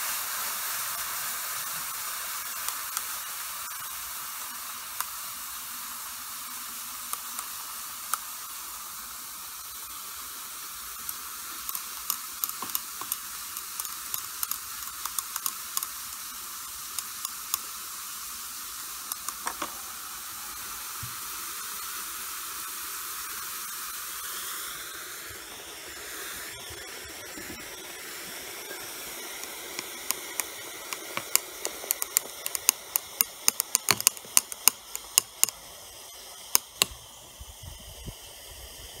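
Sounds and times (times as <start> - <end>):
fizzing reaction mixture: 0.0 - 39.0
sharp crackling pops: 0.3 - 24.3, 25.3 - 37.4
glass rod clicking on glass: 11.0 - 17.8, 29.4 - 35.6.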